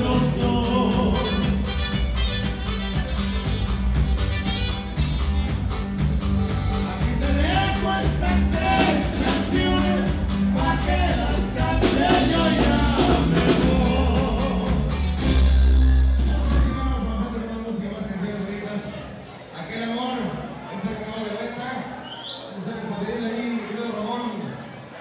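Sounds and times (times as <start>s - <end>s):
person singing: 0.0s - 2.0s, 6.7s - 15.4s
live band playing dance music: 0.0s - 18.9s.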